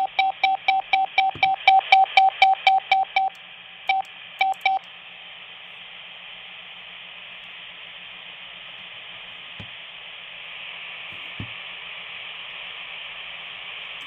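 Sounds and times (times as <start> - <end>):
morse code dits: 0.0 - 4.8
radio receiver hiss: 4.1 - 14.0.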